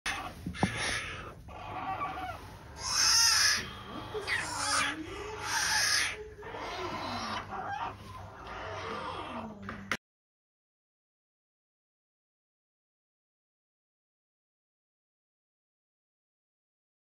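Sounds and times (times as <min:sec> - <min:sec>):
bear cubs crying: 0:00.1 - 0:09.7.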